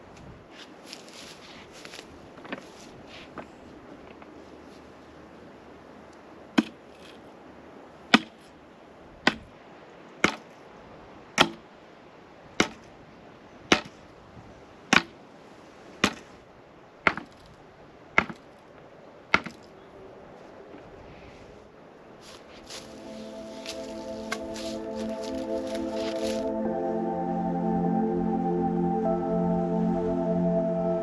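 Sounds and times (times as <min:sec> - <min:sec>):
sharp knocks on bamboo pole: 0:08.1 - 0:08.4, 0:09.2 - 0:09.5, 0:10.2 - 0:10.5, 0:11.4 - 0:11.6, 0:12.6 - 0:12.8, 0:13.7 - 0:13.9, 0:14.9 - 0:15.1, 0:16.0 - 0:16.3, 0:17.1 - 0:17.4, 0:18.2 - 0:18.4, 0:19.3 - 0:19.6.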